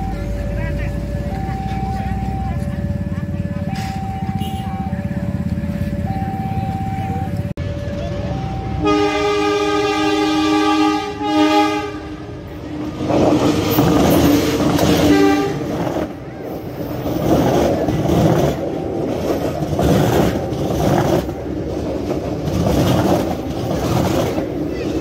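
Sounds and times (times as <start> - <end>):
diesel locomotive horn: 1.2 - 6.2, 6.9 - 13.0, 13.7 - 16.0
train wheels clattering on rails: 12.9 - 25.0.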